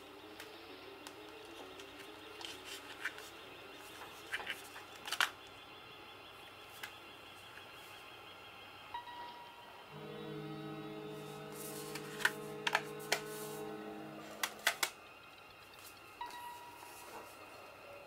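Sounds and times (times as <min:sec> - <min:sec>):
paper insert rustling: 0:11.5 - 0:15.0
plastic disc tray clicks: 0:14.4 - 0:15.0.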